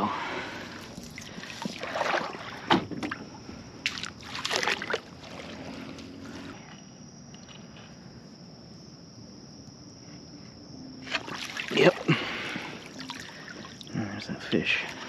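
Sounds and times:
water splashing around a kayak: 0.6 - 6.5, 11.0 - 14.2.

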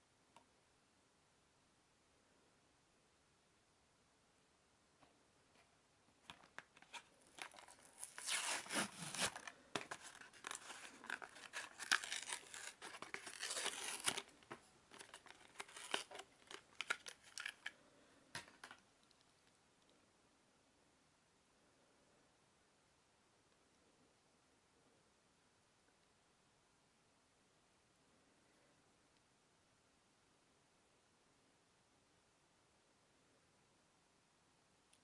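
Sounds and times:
plastic crinkling: 6.4 - 17.8
cardboard ripping: 7.5 - 14.3.

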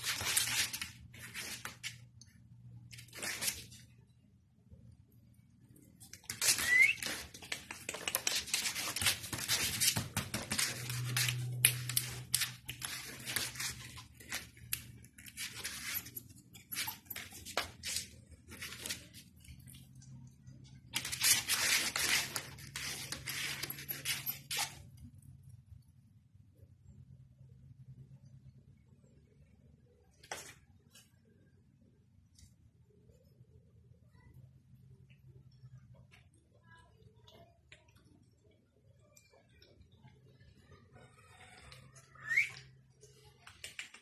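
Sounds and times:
puppy scratching a blanket: 6.2 - 19.2
brief high squeak: 6.4 - 7.3.

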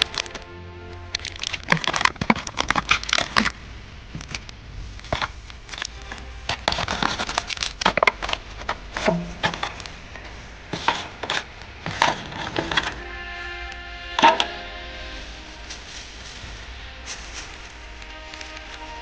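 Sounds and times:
foil and plastic crinkling: 0.0 - 3.6, 4.2 - 19.0
sharp knocks: 9.0 - 9.8.

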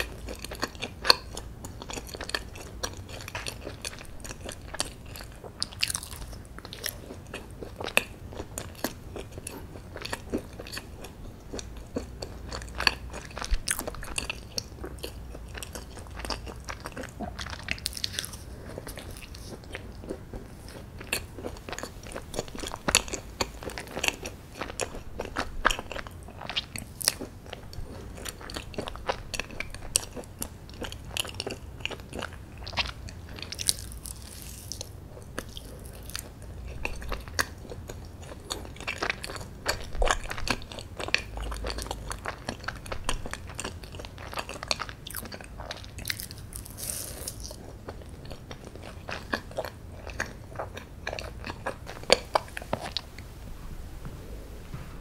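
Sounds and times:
close chewing with mouth clicks: 0.0 - 53.3.

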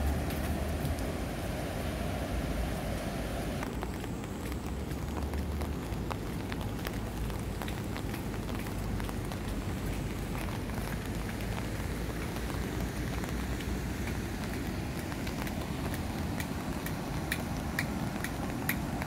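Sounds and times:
river rushing: 0.0 - 3.8, 8.5 - 19.0
light ticks: 3.8 - 12.6, 13.2 - 19.0.

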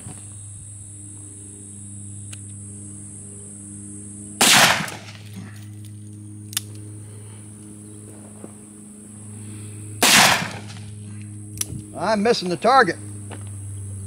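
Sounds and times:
steady low hum: 0.0 - 14.0
faint sharp click: 2.3 - 2.6
revolver gunshot: 4.4 - 5.3, 10.0 - 10.9.

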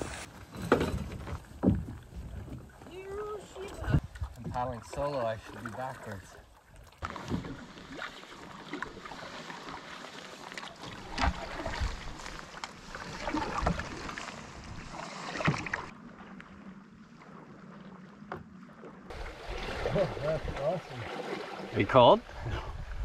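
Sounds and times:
creek water lapping against ice: 0.0 - 23.0
water splashes and ticks: 1.0 - 22.4.

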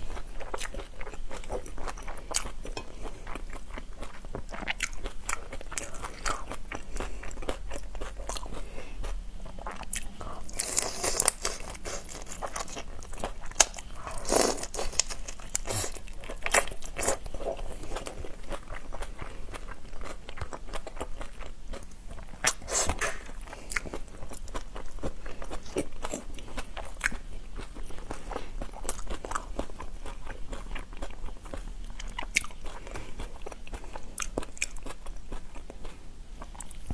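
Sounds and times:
person crunching shrimp: 0.3 - 17.2.

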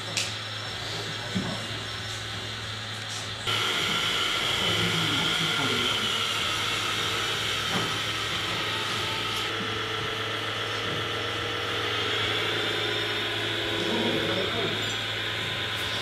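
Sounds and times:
toy truck electric motor whining: 3.5 - 16.0.

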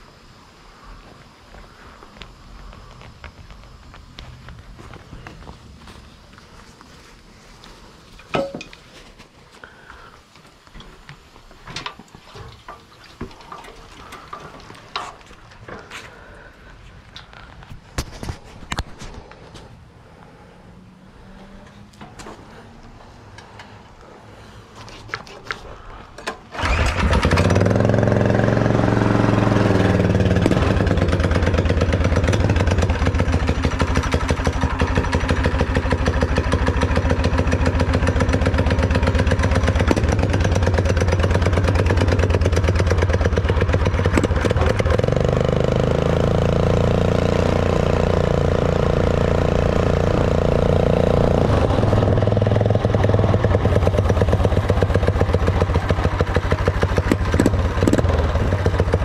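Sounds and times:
small engine starting and running: 26.2 - 59.0.

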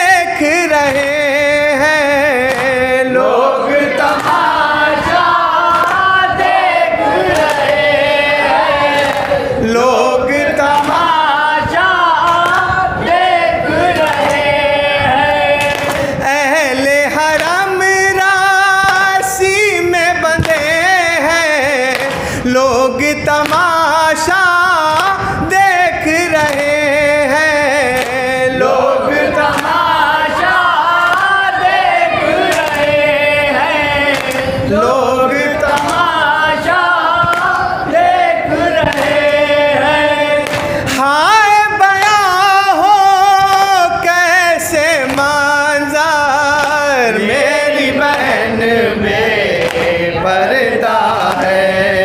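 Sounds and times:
man chanting a lament: 0.0 - 52.0.

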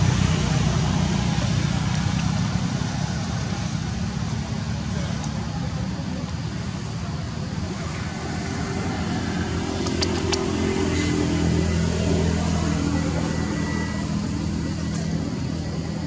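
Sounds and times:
steady engine hum: 0.0 - 16.0
sharp clicks: 9.8 - 10.5.

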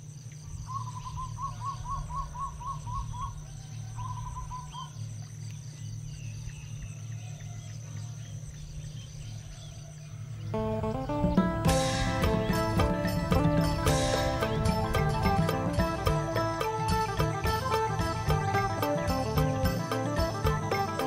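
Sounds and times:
low steady hum: 0.0 - 21.0
high-pitched insect drone: 10.6 - 21.0.

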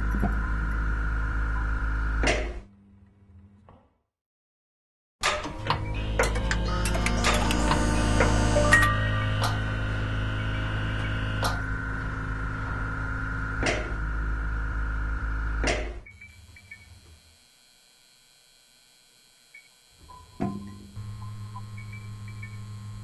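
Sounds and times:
low electronic hum: 0.0 - 3.7, 5.5 - 23.0
held electronic tones: 19.5 - 23.0.

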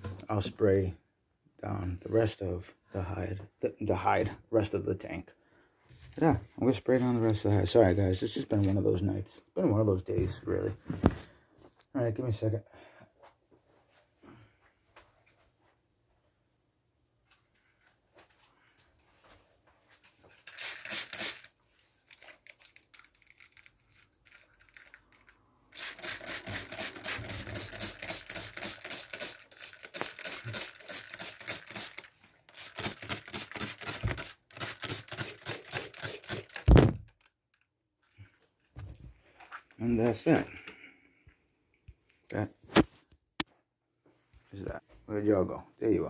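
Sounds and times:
spray bottle spritzing: 20.3 - 23.6, 25.7 - 36.7
loud thump: 36.7 - 37.0.

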